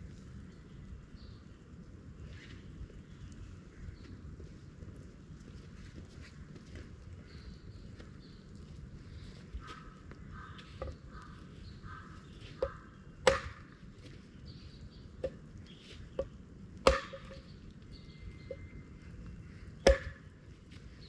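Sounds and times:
axe chopping wood: 12.6s - 13.8s, 16.8s - 17.4s, 19.8s - 20.3s.

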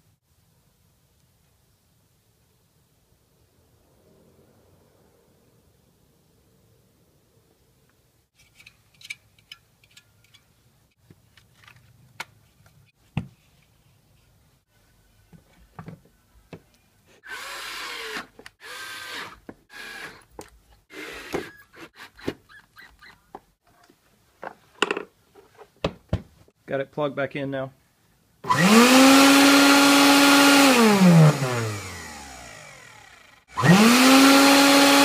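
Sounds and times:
plastic parts knocking and clicking: 24.4s - 25.1s.

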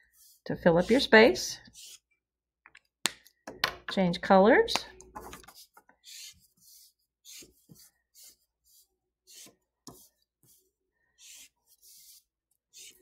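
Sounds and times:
marker scratching on paper: 0.0s - 2.1s, 5.2s - 13.0s.

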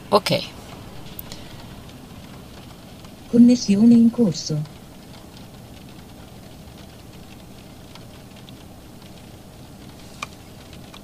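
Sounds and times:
heavy rain on car roof: 0.0s - 11.0s
raindrop ticks: 0.2s - 11.0s.

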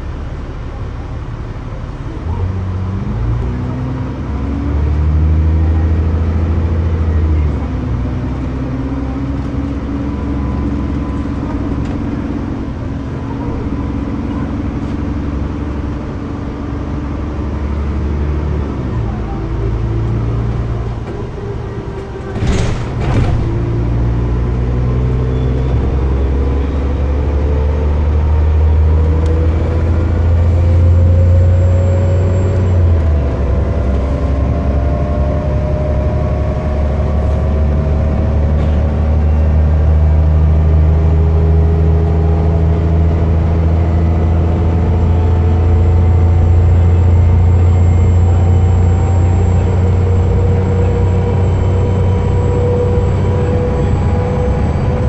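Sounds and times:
bus engine drone: 0.0s - 55.0s
clunk: 22.2s - 23.9s.

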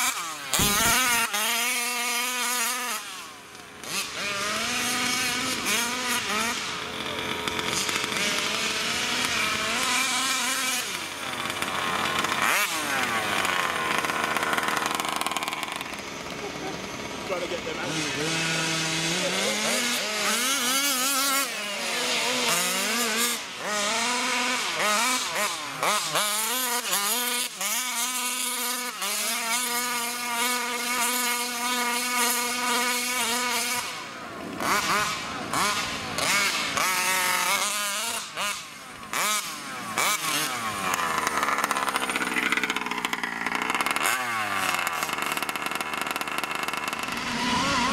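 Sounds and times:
two-stroke engine revving: 0.0s - 47.9s.

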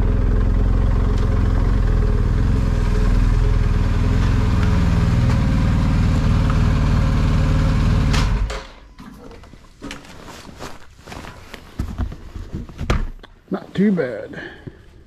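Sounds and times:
motorcycle engine running: 0.0s - 8.5s.

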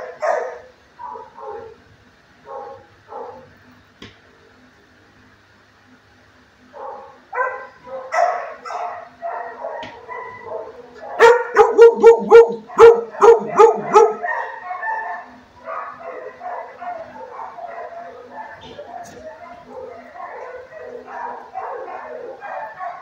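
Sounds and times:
dog barking loudly: 0.0s - 1.8s, 2.4s - 3.5s, 6.8s - 23.0s
dog whining and yipping: 11.2s - 15.3s.

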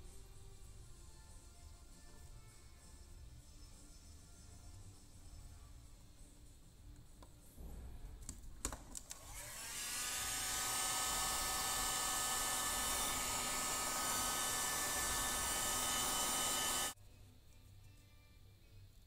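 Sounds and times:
heat gun blowing whir: 9.1s - 17.0s.

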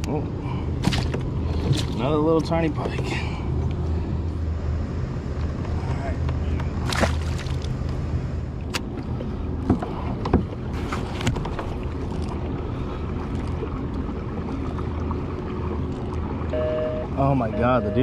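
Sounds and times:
steady low rumble: 0.0s - 18.0s
fish splashing into water: 6.8s - 7.7s.

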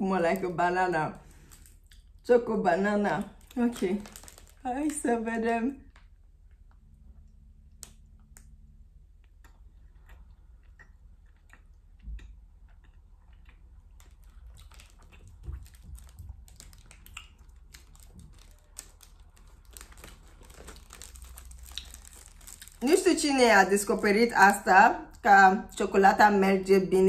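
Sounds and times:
low steady hum: 0.0s - 27.0s
chewing and mouth clicks: 1.6s - 2.2s, 9.2s - 22.8s.

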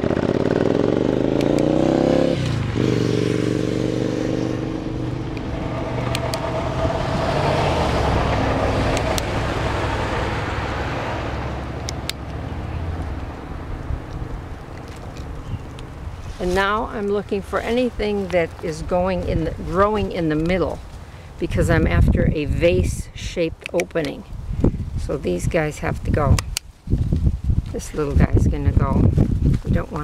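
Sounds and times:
vehicle engine accelerating: 0.0s - 16.8s
road noise: 0.0s - 30.0s
hand pruners clicking: 1.4s - 1.7s, 8.9s - 9.3s, 11.8s - 12.4s, 23.6s - 24.2s.

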